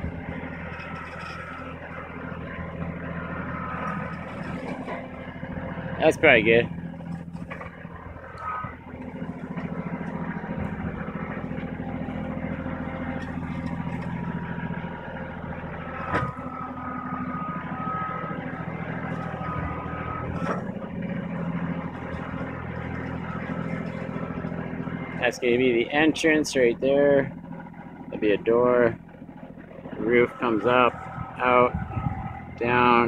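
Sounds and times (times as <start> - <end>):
tractor engine idling: 0.0 - 33.0.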